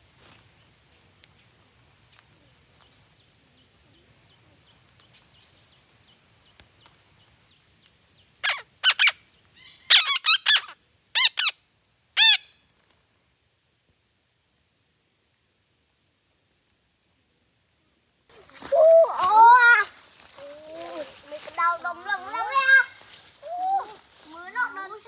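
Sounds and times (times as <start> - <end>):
soft hiss: 0.0 - 25.0
faint light ticks: 1.1 - 3.0, 4.6 - 7.1, 7.8 - 8.0
parrots calling loudly: 8.4 - 11.6, 12.2 - 12.5.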